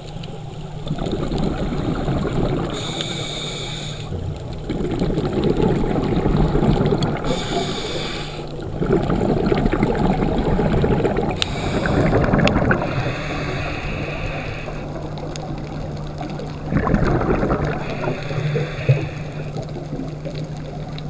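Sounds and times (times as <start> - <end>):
bubbling exhale: 0.9 - 20.8
regulator hissing inhale: 2.7 - 4.2, 7.2 - 8.6, 11.4 - 15.1, 17.7 - 19.7.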